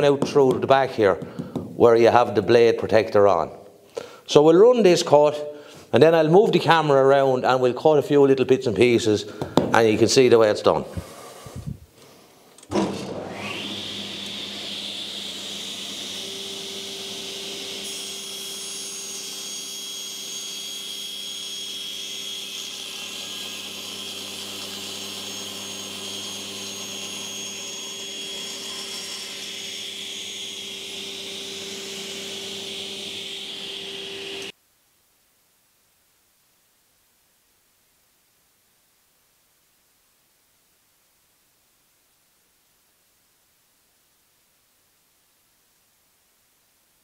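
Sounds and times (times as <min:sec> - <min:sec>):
saw motor hum and whine: 0:13.2 - 0:34.5
saw blade cutting wood: 0:13.3 - 0:34.5.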